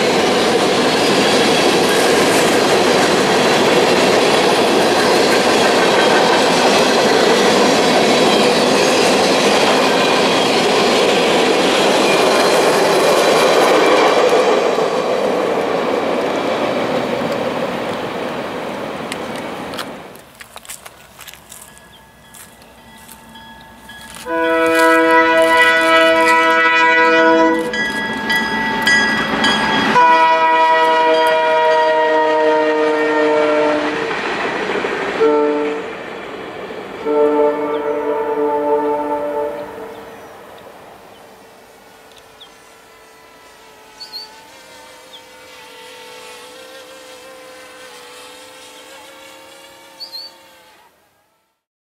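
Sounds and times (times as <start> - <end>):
locomotive horn chord: 24.0 - 34.1, 35.2 - 35.9, 37.0 - 40.3, 41.6 - 51.5
drone propellers whining: 39.5 - 46.9
bird chirps: 44.0 - 44.4, 50.0 - 50.4.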